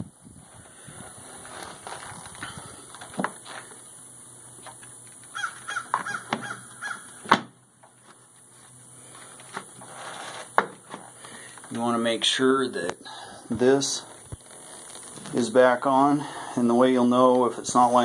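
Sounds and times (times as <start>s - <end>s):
crow cawing: 5.3s - 7.2s.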